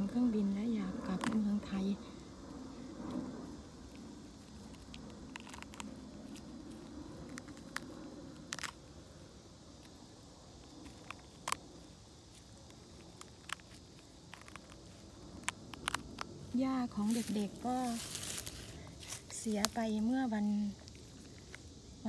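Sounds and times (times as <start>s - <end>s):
low outdoor background: 0.0s - 22.0s
mushrooms snapping off a log: 13.0s - 16.3s.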